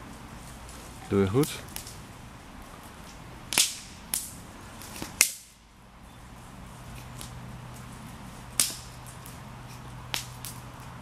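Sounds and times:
sharp cracks: 0:03.5 - 0:05.6, 0:08.5 - 0:09.4, 0:10.1 - 0:10.7.

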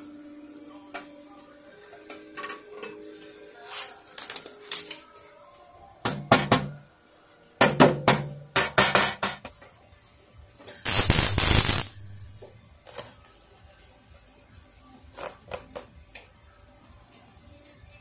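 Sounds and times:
welder crackling and hissing: 0:10.7 - 0:12.5.

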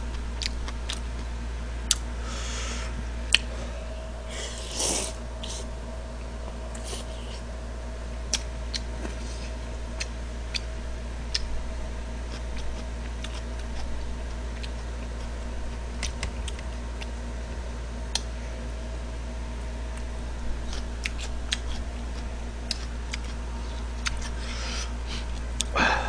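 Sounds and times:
low electrical hum: 0:00.0 - 0:26.0
man chewing noodles: 0:06.7 - 0:07.4, 0:08.3 - 0:10.7, 0:11.3 - 0:17.2, 0:20.0 - 0:25.8
sharp mouth smacks and clicks: 0:11.3 - 0:11.5, 0:18.1 - 0:18.3.

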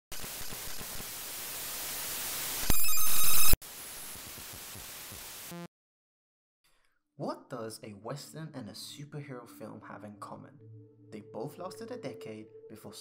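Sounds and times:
television static hiss: 0:00.1 - 0:05.7.

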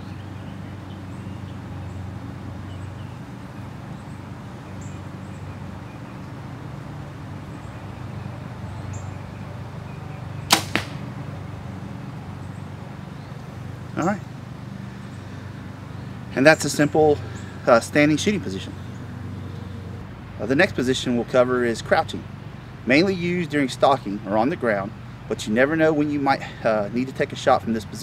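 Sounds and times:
arrow hitting bag target: 0:10.5 - 0:11.2.

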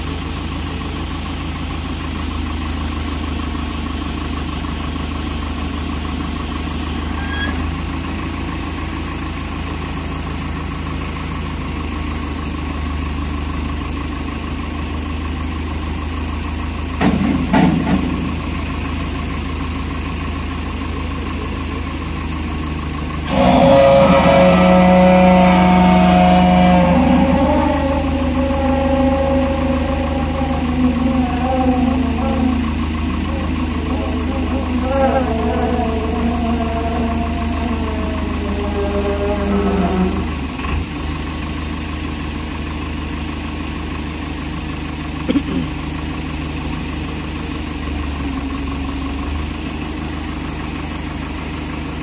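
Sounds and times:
hydraulics whine: 0:00.0 - 0:52.0
tractor engine idling: 0:00.0 - 0:52.0.

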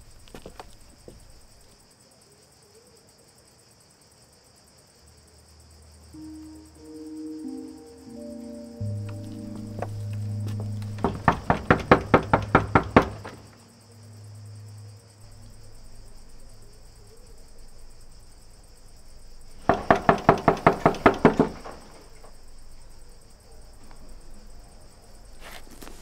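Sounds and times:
knuckles knocking on wooden door: 0:09.7 - 0:13.4, 0:19.7 - 0:21.9.

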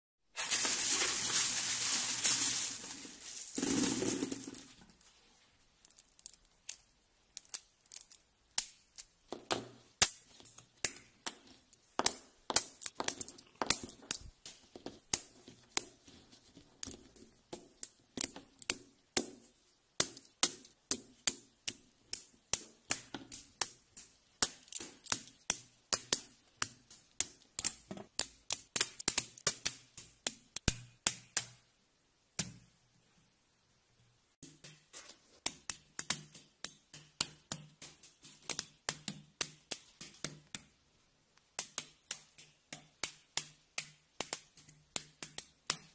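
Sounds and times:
steel balls rattling in plastic tray: 0:00.4 - 0:05.0, 0:05.8 - 0:30.6.

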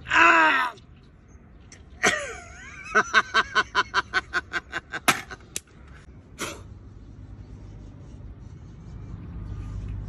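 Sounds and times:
man laughing: 0:02.0 - 0:05.4.

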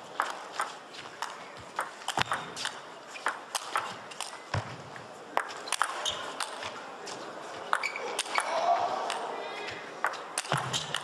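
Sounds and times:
ping pong ball on rackets: 0:00.2 - 0:04.7, 0:10.0 - 0:11.0
ball bouncing on table: 0:01.7 - 0:02.6, 0:10.0 - 0:11.0.

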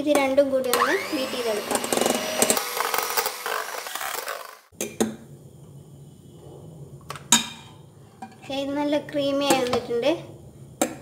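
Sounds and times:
electric hand mixer whisking: 0:00.7 - 0:04.7.

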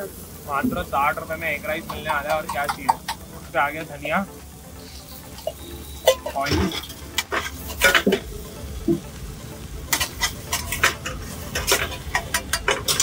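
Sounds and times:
oil sizzling: 0:00.0 - 0:13.0
metal spatula scraping a frying pan: 0:04.8 - 0:08.3, 0:09.8 - 0:13.0.

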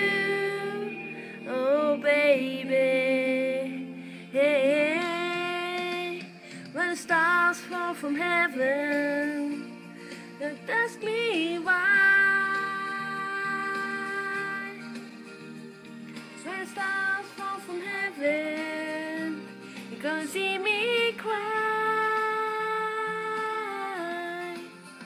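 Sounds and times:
person singing with vibrato: 0:00.0 - 0:14.9.

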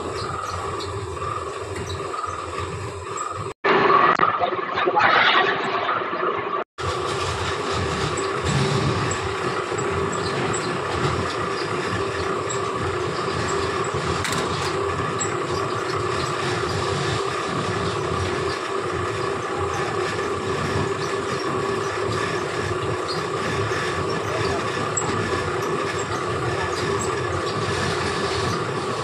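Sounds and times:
fabric machine running: 0:06.8 - 0:29.0.

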